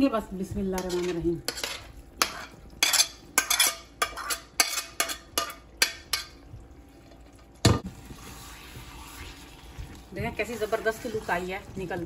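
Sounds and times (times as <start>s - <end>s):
utensil scraping a pan: 0.8s - 6.3s.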